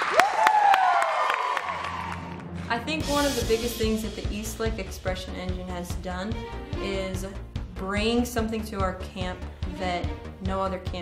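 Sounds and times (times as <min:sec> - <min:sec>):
children shouting and whooping: 0:00.0 - 0:02.4.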